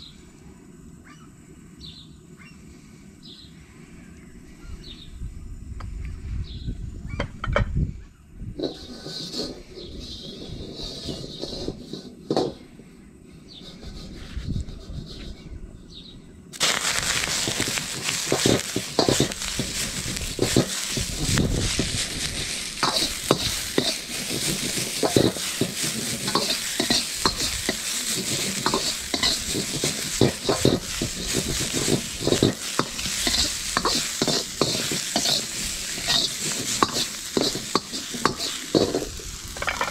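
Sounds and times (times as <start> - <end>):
metal ladle scraping a wok: 8.6 - 12.5, 16.6 - 39.9
vegetables sizzling in a wok: 8.6 - 12.6, 16.6 - 39.9.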